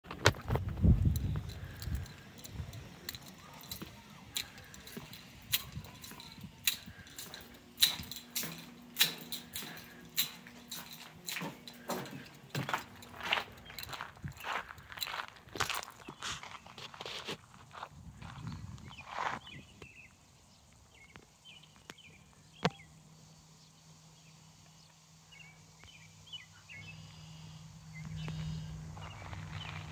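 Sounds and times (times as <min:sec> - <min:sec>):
low steady hum: 0:00.1 - 0:16.5, 0:19.6 - 0:29.9
footsteps on brick floor: 0:00.1 - 0:18.4, 0:28.1 - 0:29.9
birds chirping: 0:00.9 - 0:16.8, 0:18.3 - 0:29.9.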